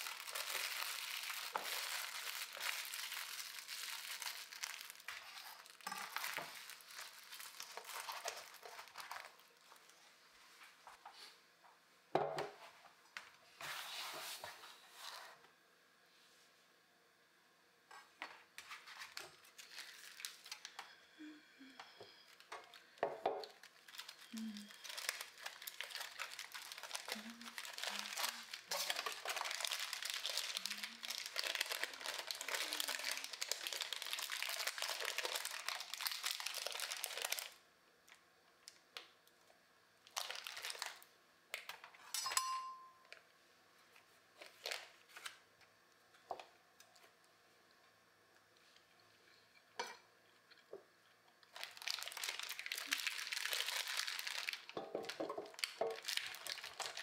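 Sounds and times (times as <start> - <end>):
plastic wrapper crinkling: 0.0 - 10.0, 18.6 - 21.0, 22.2 - 39.2, 40.0 - 42.0, 44.4 - 45.4, 51.4 - 57.0.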